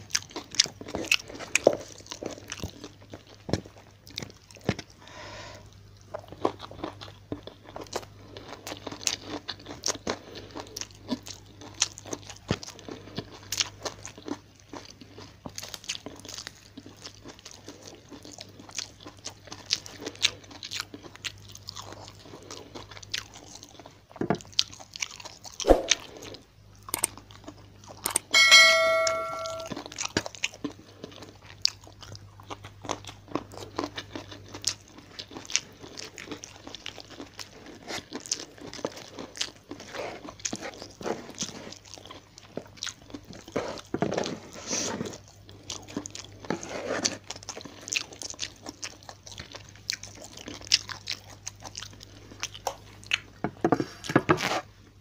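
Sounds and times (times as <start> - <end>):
wet chewing and crunching: 0.0 - 5.0, 5.7 - 28.3, 29.8 - 54.5
chime-like sound effect: 28.2 - 29.8.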